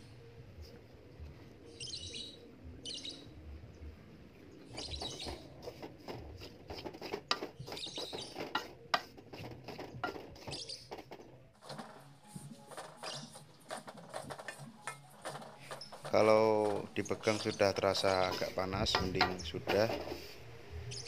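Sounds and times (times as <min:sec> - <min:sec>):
spatula scraping metal wok: 0:16.8 - 0:20.4.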